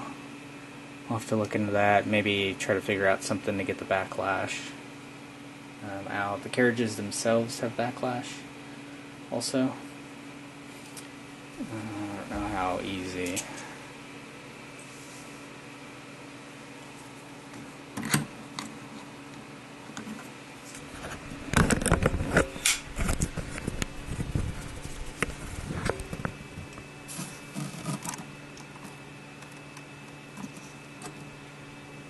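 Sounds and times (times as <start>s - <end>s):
steady hum: 0.0s - 32.0s
handling clicks knocks and scrapes: 17.5s - 31.3s.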